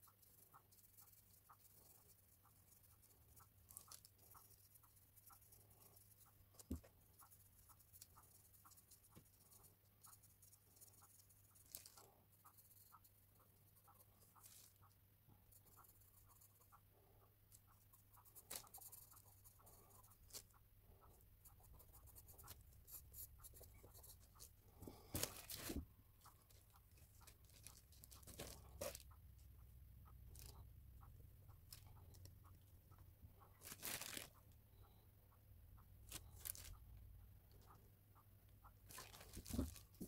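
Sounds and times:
pencil scratching on paper: 0:00.0 - 0:32.6
eraser rustling and scraping: 0:22.9 - 0:25.8.

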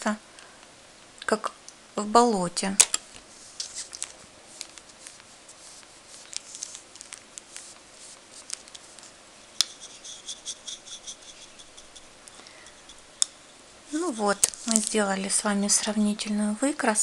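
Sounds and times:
paintbrush strokes on paper: 0:03.2 - 0:16.1.

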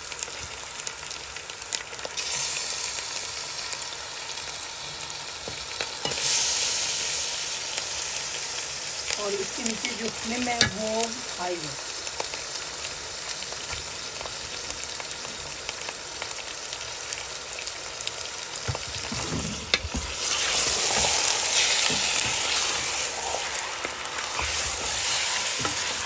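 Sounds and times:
chicken sizzling in oil: 0:00.0 - 0:26.0
wooden spoon stirring: 0:18.8 - 0:26.0.

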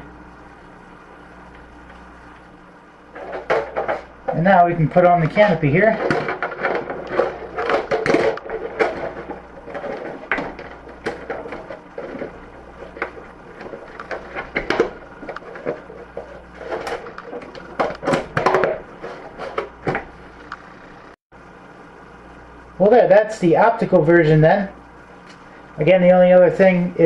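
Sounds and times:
plastic canopy clicks and rubbing: 0:03.2 - 0:19.7.

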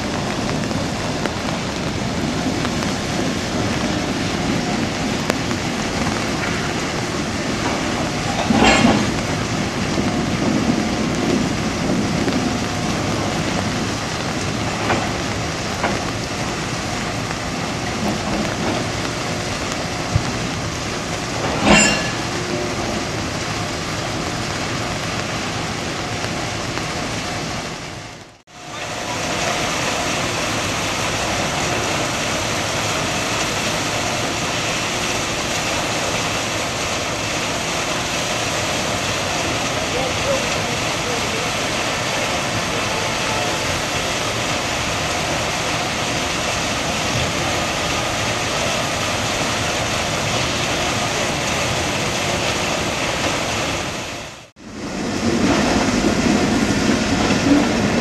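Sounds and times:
boxcars rolling rumble: 0:00.0 - 0:58.0
loud metallic clanks: 0:07.6 - 0:09.4, 0:21.3 - 0:23.3.

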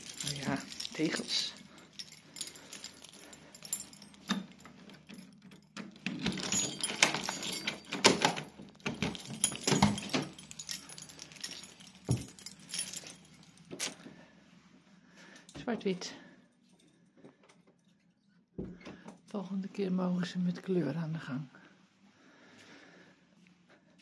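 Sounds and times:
keys jangling: 0:00.0 - 0:14.0.

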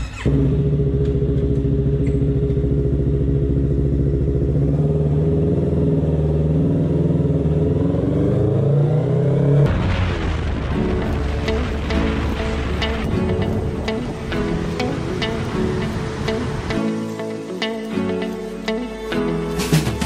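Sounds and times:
motorcycle engine idling and revving: 0:00.0 - 0:09.7.

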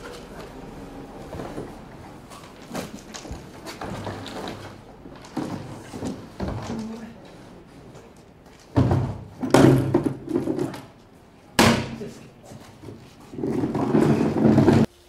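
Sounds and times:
plastic bin knocking and clattering: 0:08.7 - 0:10.9, 0:12.9 - 0:14.9
bin rumbling as moved: 0:12.9 - 0:14.9.

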